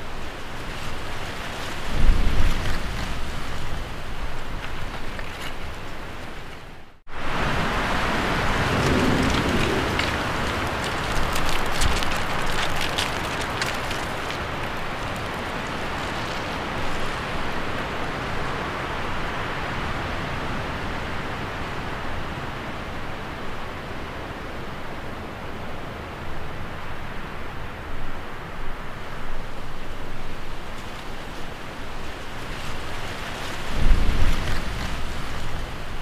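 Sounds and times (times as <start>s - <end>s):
light crackles: 0.0s - 6.7s, 8.6s - 17.9s, 29.4s - 36.0s
steady rushing noise: 5.6s - 36.0s.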